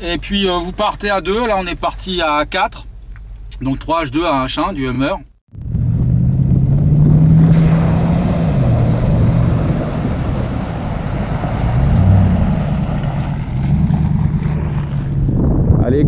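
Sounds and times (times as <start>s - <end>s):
truck engine running: 5.5s - 15.6s
water splashing: 6.7s - 15.1s.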